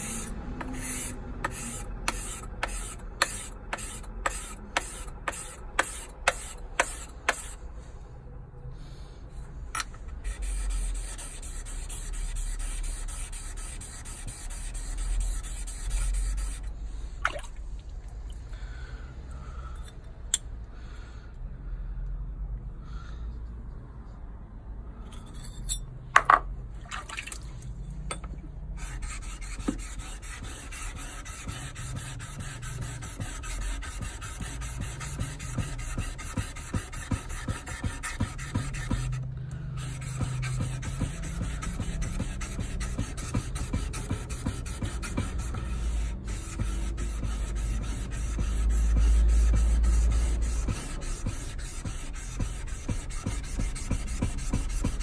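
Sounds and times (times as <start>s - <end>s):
blade scraping on abrasive plate: 0.0s - 7.6s, 10.2s - 16.7s, 28.8s - 39.2s.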